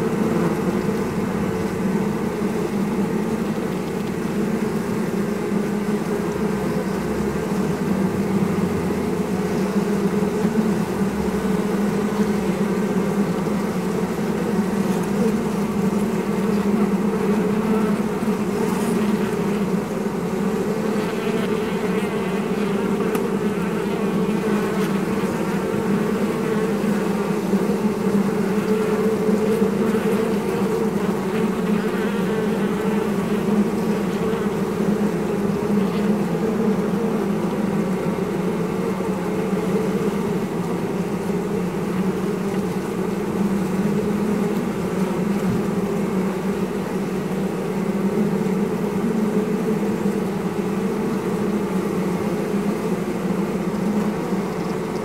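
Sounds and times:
honeybees buzzing: 0:00.0 - 0:55.0.

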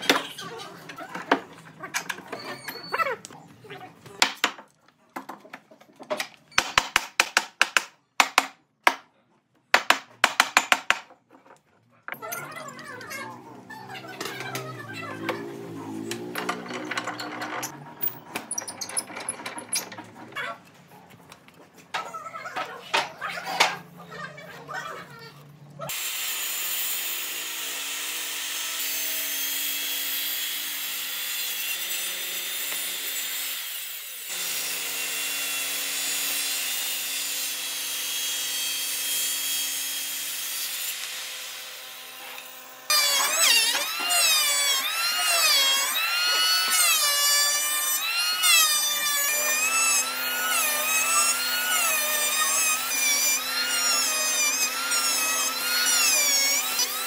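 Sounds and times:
power tool cutting wood: 0:12.5 - 0:20.0, 0:25.9 - 0:57.0.

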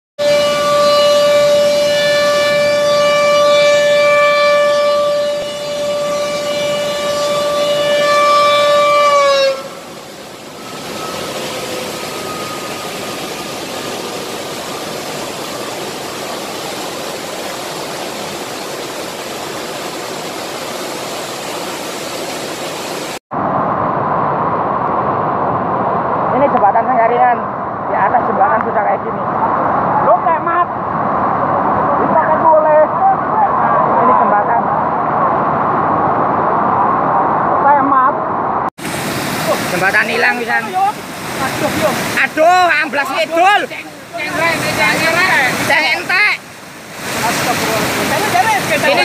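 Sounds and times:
warning siren: 0:00.2 - 0:15.7
rushing floodwater: 0:00.2 - 0:49.0.

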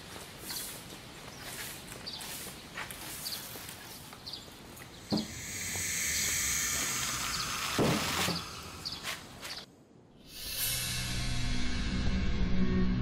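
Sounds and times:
small bird chirping: 0:00.4 - 0:09.7
hissing noise: 0:05.0 - 0:09.7.

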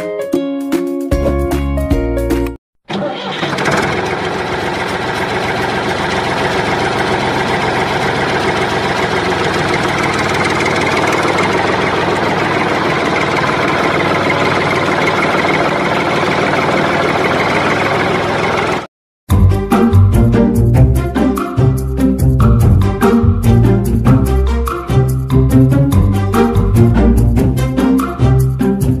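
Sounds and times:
tractor engine idling: 0:02.9 - 0:18.9.

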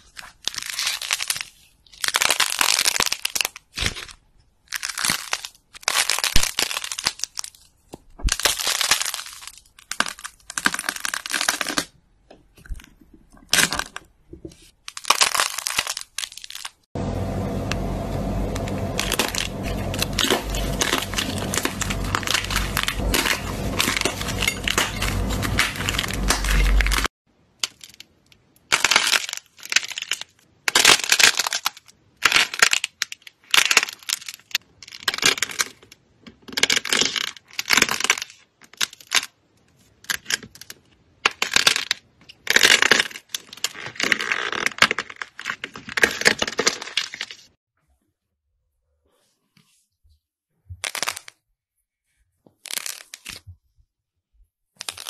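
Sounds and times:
slime crackling and popping: 0:00.0 - 0:12.0, 0:13.5 - 0:16.9, 0:18.8 - 0:35.7, 0:50.8 - 0:51.4, 0:54.7 - 0:55.0
low hum: 0:17.0 - 0:27.1.

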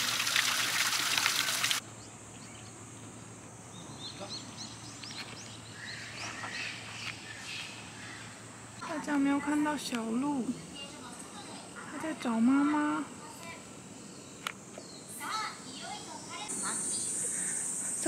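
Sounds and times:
water trickling into a pond: 0:00.0 - 0:01.8
bird chirping: 0:01.9 - 0:03.1, 0:03.7 - 0:08.5.

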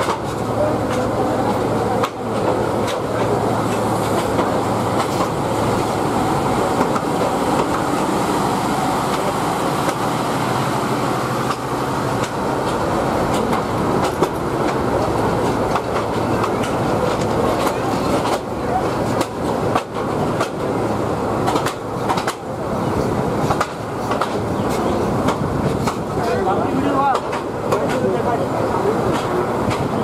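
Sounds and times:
train coaches rumbling past: 0:00.0 - 0:30.0
wheels clicking over rail joints: 0:21.4 - 0:22.6.

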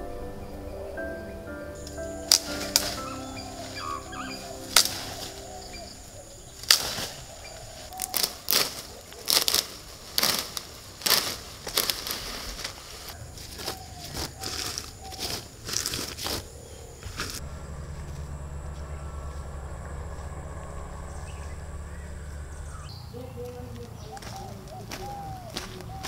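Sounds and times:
leaves rustling and branches snapping: 0:01.8 - 0:21.0.

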